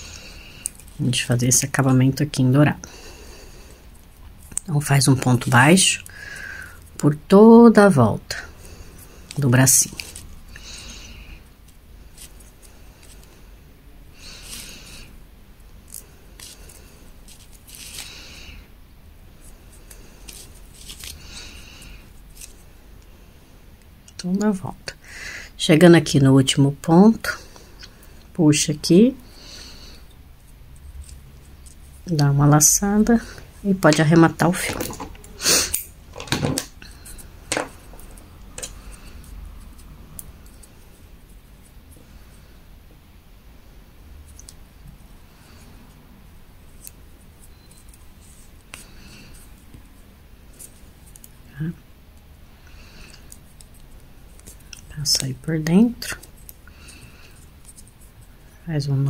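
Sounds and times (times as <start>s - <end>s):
crochet hook rustling and scraping: 0.0s - 2.7s, 3.9s - 6.1s, 6.8s - 13.3s, 14.3s - 15.1s, 15.8s - 18.6s, 19.4s - 22.7s, 28.4s - 42.5s, 46.6s - 59.0s
scissors snipping yarn: 20.3s - 21.2s.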